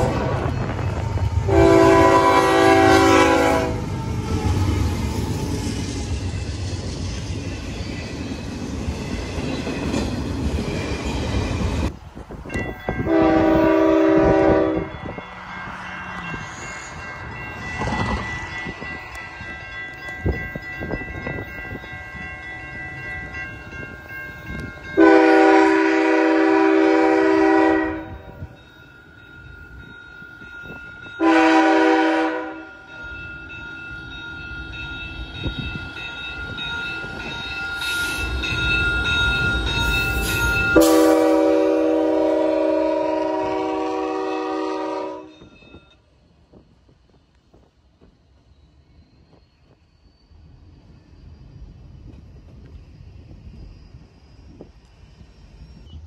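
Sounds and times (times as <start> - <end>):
train wheels rumbling on rails: 0.0 - 56.0
locomotive air horn blasts: 1.5 - 3.8, 13.0 - 15.0, 25.0 - 28.2, 31.2 - 32.7, 40.8 - 45.4.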